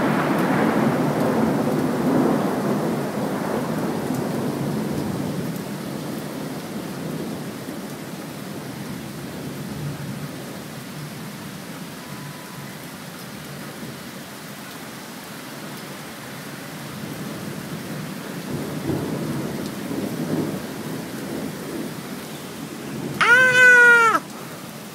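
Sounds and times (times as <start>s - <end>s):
steady rain: 0.0s - 24.9s
cat meowing: 23.2s - 24.2s.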